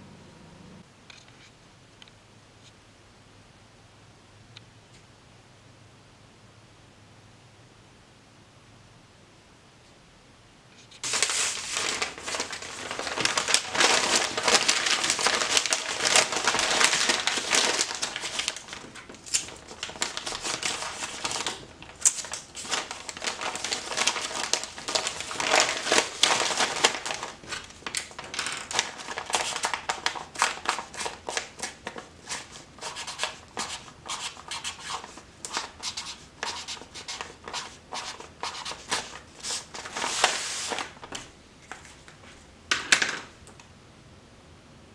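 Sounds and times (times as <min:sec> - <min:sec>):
paper crinkling and rustling: 0:11.0 - 0:43.3.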